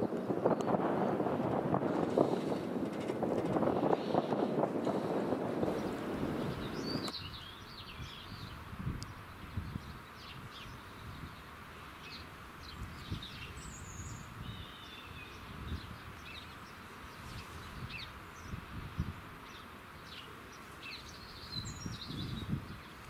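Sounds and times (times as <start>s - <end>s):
low uneven rumble: 0.0s - 7.1s
steady outdoor hiss: 0.0s - 23.0s
small birds chirping: 1.9s - 23.0s.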